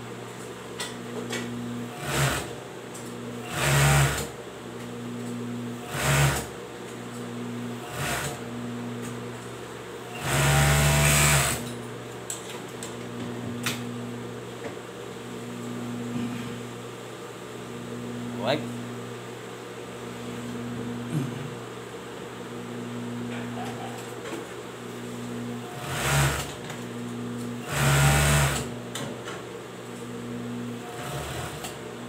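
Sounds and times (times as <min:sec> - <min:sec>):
steady machine hum: 0:00.0 - 0:32.0
overlock machine stitching: 0:02.0 - 0:02.5, 0:03.5 - 0:04.3, 0:05.9 - 0:06.5, 0:10.2 - 0:11.6, 0:25.8 - 0:26.5, 0:27.7 - 0:28.7, 0:30.9 - 0:31.7.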